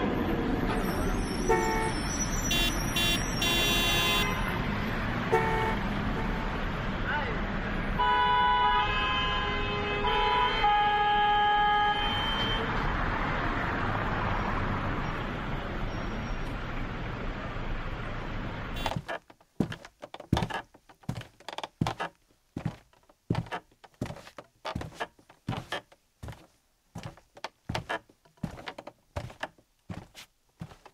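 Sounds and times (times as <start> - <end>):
street traffic rushing: 0.0 - 30.9
vehicle horns blasting: 1.4 - 4.6, 5.3 - 6.7, 8.0 - 12.7, 18.8 - 19.2
sharp knocks: 18.8 - 25.9.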